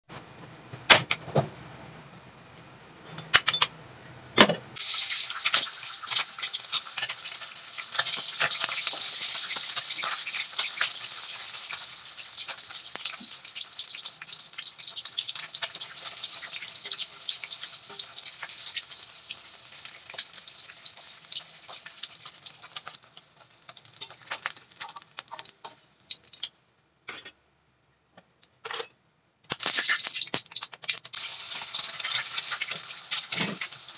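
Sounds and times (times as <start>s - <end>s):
egg frying in hot oil: 4.8s - 26.6s, 29.4s - 33.9s.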